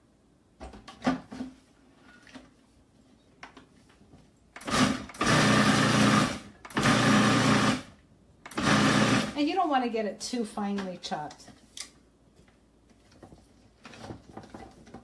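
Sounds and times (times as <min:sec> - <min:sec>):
food processor chopping: 0:04.6 - 0:07.9, 0:08.5 - 0:09.4.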